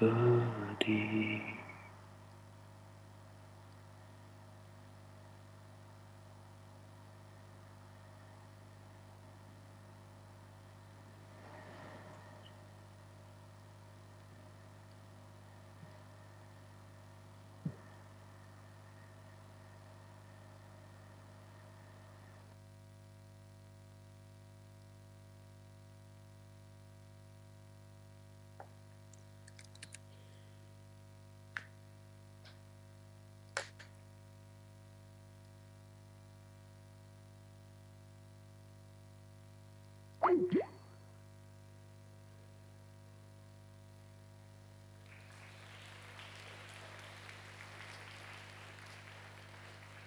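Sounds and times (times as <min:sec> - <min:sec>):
steady low hum: 0:00.0 - 0:24.2
audience applauding: 0:45.0 - 0:50.0.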